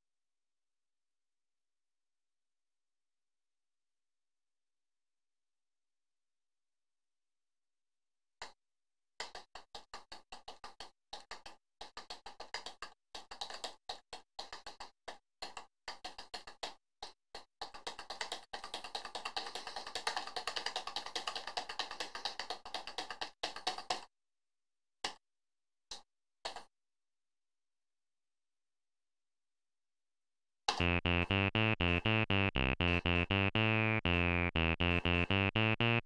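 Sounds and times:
keyboard keys clicking: 30.8s - 36.0s.

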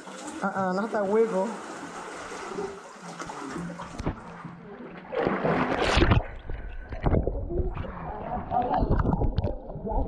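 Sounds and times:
water splashing: 0.0s - 10.0s
muffled underwater sound: 4.0s - 10.0s.

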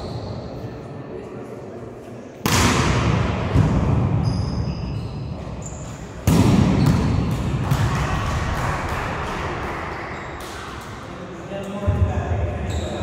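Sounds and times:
volleyball hit echoing: 2.4s - 4.2s, 6.2s - 8.6s
sneakers squeaking on court: 4.1s - 7.5s, 12.6s - 13.0s.

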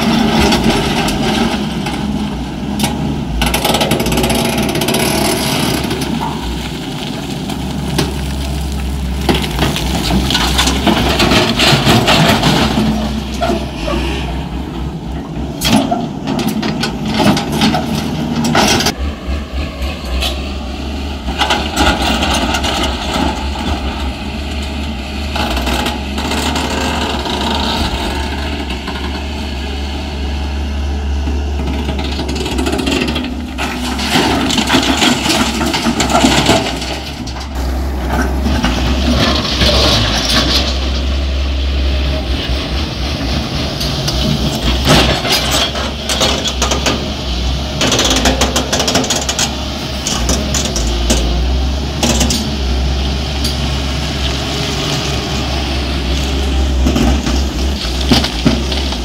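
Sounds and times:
excavator diesel engine running: 0.0s - 59.0s
bucket and stones clattering: 3.5s - 13.7s, 32.5s - 41.2s, 53.5s - 59.0s.

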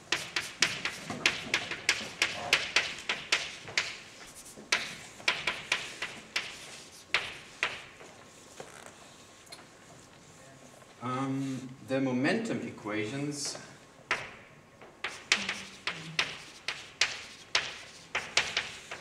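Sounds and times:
chalk writing on a blackboard: 0.0s - 9.4s, 15.0s - 19.0s.

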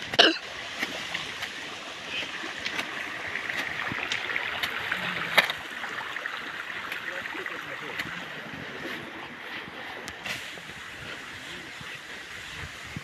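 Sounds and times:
stream running over stones: 0.0s - 13.0s.

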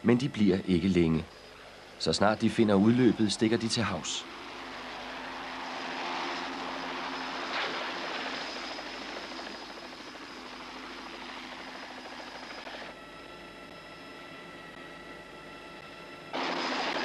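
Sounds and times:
helicopter engine whine: 0.0s - 17.0s
helicopter rotor chopping: 2.3s - 13.0s, 16.3s - 17.0s.

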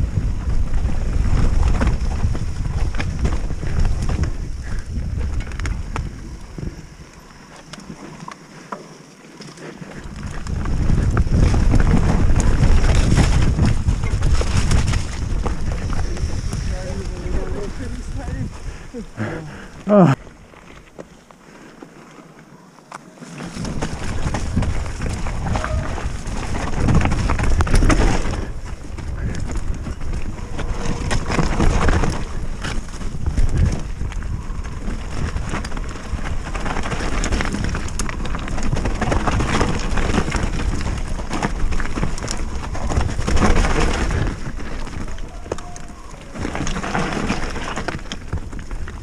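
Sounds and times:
wind buffeting microphone: 0.0s - 7.5s, 9.8s - 20.5s, 23.4s - 49.0s
bike tyres rumbling over dirt: 0.0s - 49.0s
bike knocks and rattles: 9.4s - 17.9s, 23.3s - 49.0s.

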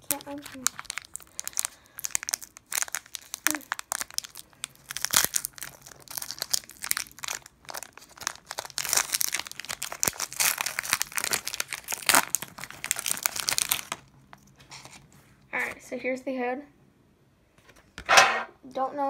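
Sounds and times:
foil wrapper crinkling and tearing: 0.0s - 15.0s.

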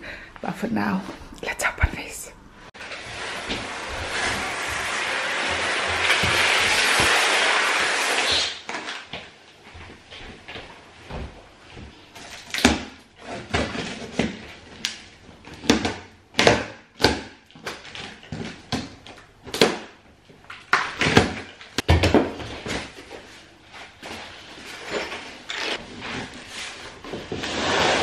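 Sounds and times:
cardboard scraping and ripping: 2.8s - 9.0s, 24.0s - 28.0s
knife cutting cardboard box: 25.7s - 28.0s.

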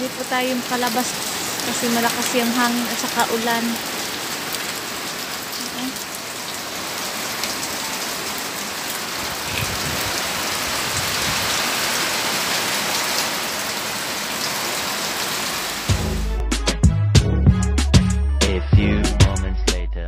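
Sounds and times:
heavy rain on metal roof: 0.0s - 16.2s
music with heavy beat: 15.9s - 19.9s.

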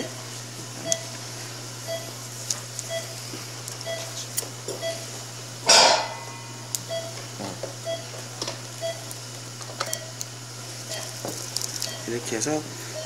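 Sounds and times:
steady hum: 0.0s - 13.0s
patient monitor beeping: 0.8s - 1.2s, 1.8s - 2.2s, 2.9s - 3.2s, 3.8s - 7.2s, 7.8s - 8.2s, 8.8s - 9.2s, 9.8s - 13.0s.

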